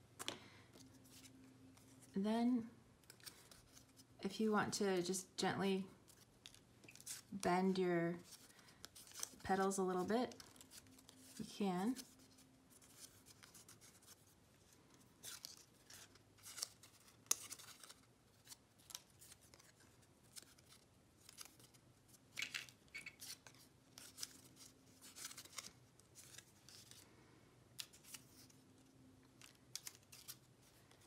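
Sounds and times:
paper rustling and crinkling: 8.2 - 27.1, 27.8 - 31.0.

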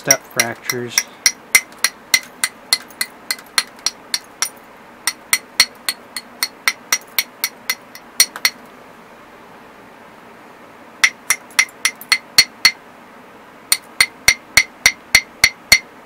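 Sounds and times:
stone striking glassy rock: 0.0 - 8.6.

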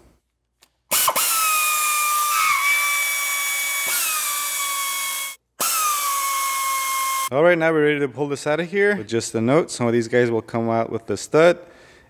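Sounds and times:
air tool whining at high pitch: 0.9 - 7.3.

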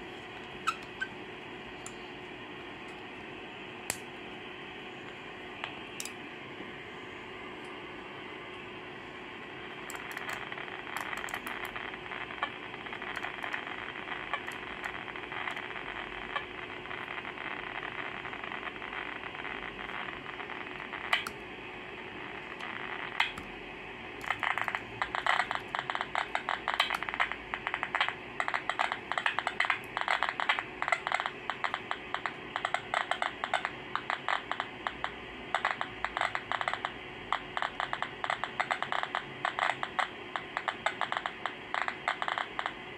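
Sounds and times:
crackle of static: 0.0 - 42.9
radio band hiss: 0.0 - 42.9.

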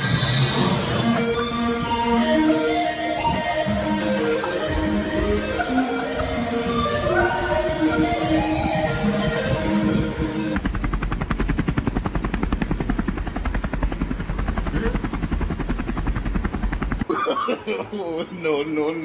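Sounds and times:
music: 0.0 - 14.0
helicopter rotor and engine: 0.0 - 19.0.

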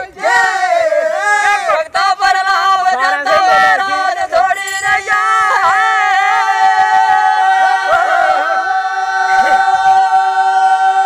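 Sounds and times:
unaccompanied folk singing: 0.0 - 10.7.

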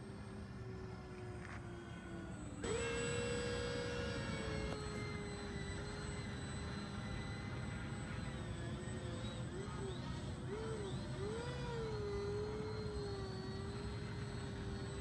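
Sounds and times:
model aircraft propellers whining: 0.0 - 15.0.

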